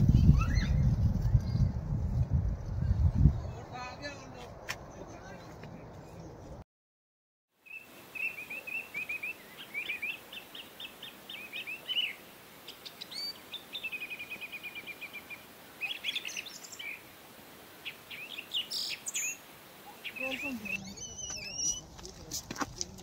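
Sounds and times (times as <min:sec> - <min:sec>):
songbirds chirping: 0:02.6 - 0:06.6, 0:07.6 - 0:23.0
bird trill: 0:20.0 - 0:21.8.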